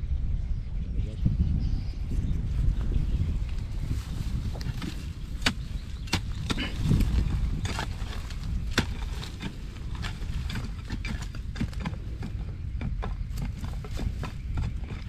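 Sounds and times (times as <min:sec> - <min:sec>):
steady low rumble: 0:00.0 - 0:15.0
sharp knocks and clicks: 0:07.6 - 0:15.0.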